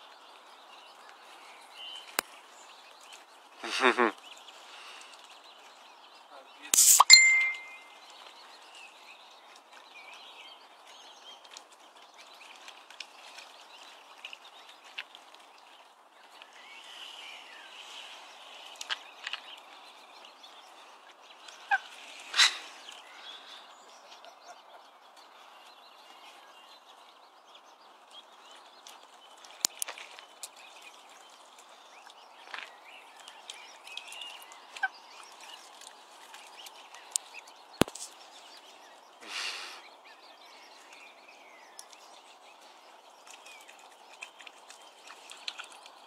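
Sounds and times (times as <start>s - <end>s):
birds chirping: 0.2s - 46.0s.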